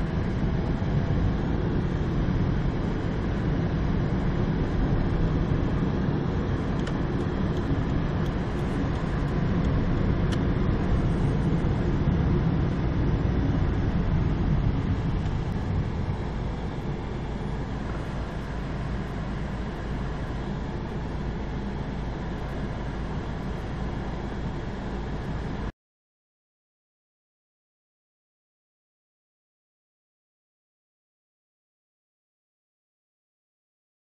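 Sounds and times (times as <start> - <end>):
car engine and tyre rumble: 0.0 - 25.7.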